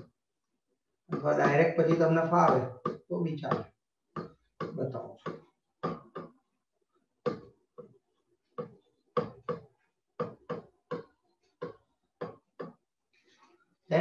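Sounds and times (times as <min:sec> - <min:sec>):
stylus tapping on tablet: 0:01.1 - 0:06.4, 0:07.2 - 0:07.9, 0:08.6 - 0:12.8.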